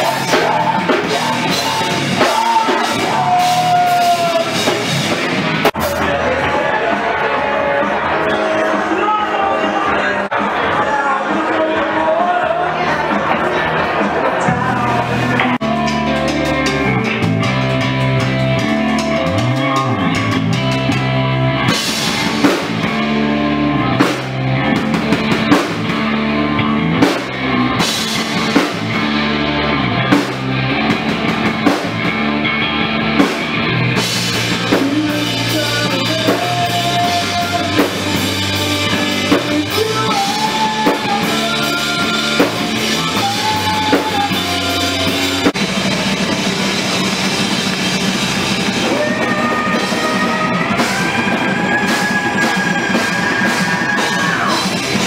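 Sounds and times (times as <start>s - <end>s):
person singing: 0.0s - 22.9s, 34.0s - 45.6s, 47.6s - 55.0s
drum kit steady beat: 0.0s - 55.0s
guitar: 0.0s - 55.0s.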